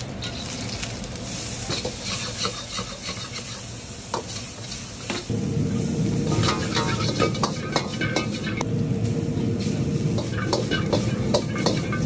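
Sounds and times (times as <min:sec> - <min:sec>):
garlic sizzling in hot oil: 0:00.0 - 0:12.0
metal ladle scraping a wok: 0:01.7 - 0:04.9, 0:09.6 - 0:12.0.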